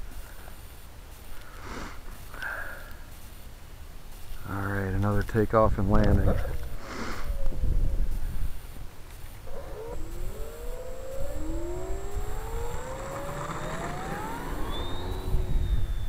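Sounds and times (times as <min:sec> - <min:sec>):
model plane motor whine: 0:09.3 - 0:16.0
wind rumble on microphone: 0:11.2 - 0:16.0.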